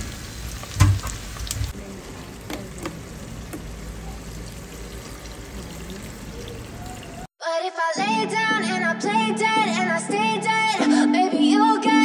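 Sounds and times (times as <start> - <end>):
meat sizzling and bubbling in a pot: 0.0 - 7.3.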